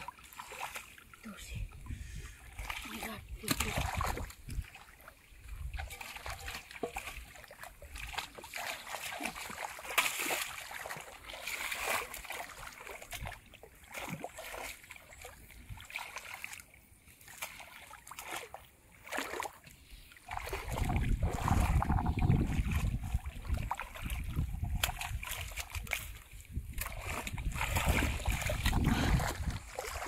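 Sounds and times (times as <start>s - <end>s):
muddy water splashing: 0.0s - 30.0s.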